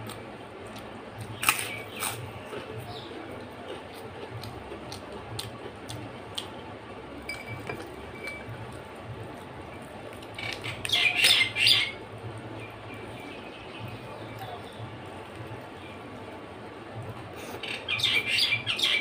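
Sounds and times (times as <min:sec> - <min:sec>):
papadum crackling being crumbled: 0:00.8 - 0:02.7.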